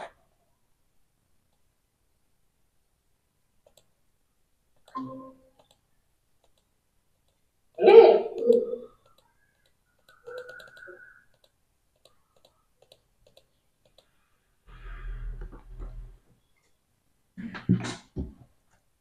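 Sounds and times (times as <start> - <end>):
computer mouse clicking: 3.6 - 4.0, 4.7 - 7.5, 8.4 - 14.2.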